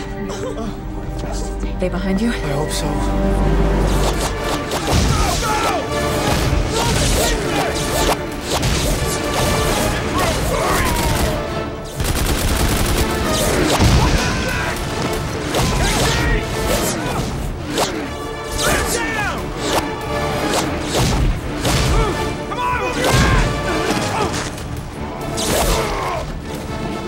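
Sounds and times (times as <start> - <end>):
film music score: 0.0 - 27.0
gunfire: 4.2 - 17.1.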